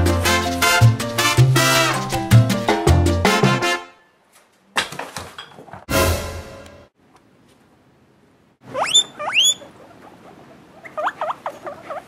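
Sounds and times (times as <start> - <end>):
guinea pig squealing: 8.6 - 12.0
short lower squeaks: 8.7 - 9.7.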